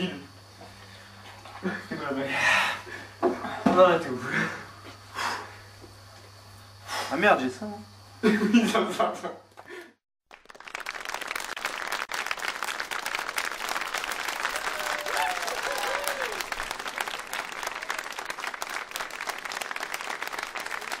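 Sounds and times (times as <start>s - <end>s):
audience applauding: 10.3s - 21.0s
voices calling out: 14.4s - 18.2s.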